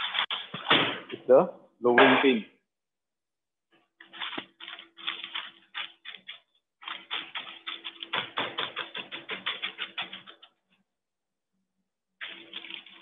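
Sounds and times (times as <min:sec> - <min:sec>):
parchment paper crackling: 0:00.0 - 0:00.7, 0:03.7 - 0:10.8, 0:12.2 - 0:13.0.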